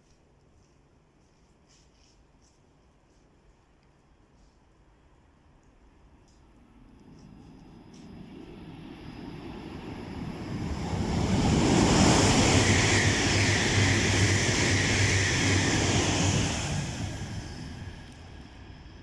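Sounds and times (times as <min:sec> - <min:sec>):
high-speed train passing: 0:06.6 - 0:19.0.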